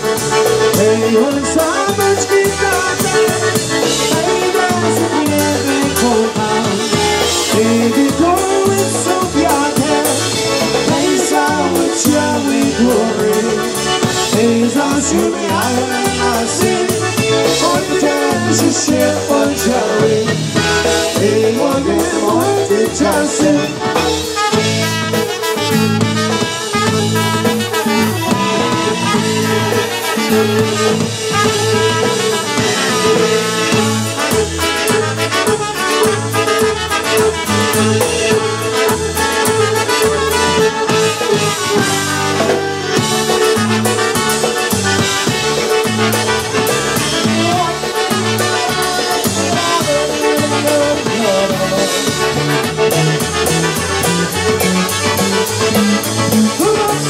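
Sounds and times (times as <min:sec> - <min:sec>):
accordion: 0:00.0 - 0:57.0
drum kit with cymbal hits: 0:00.0 - 0:57.0
polka band playing: 0:00.0 - 0:57.0
trumpet melody: 0:00.0 - 0:57.0
man singing into microphone: 0:00.7 - 0:03.4, 0:04.0 - 0:24.1, 0:47.0 - 0:52.4, 0:56.5 - 0:57.0.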